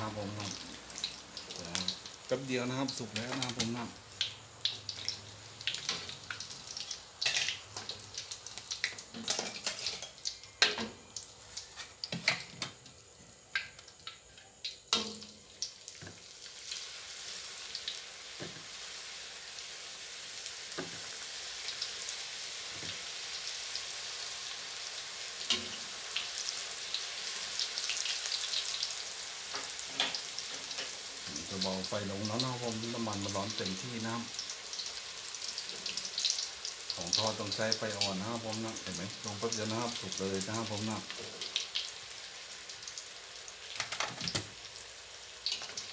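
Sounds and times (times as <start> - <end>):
deep-frying sizzle: 0.0 - 45.9
metal utensils scraping a wok: 9.1 - 10.9.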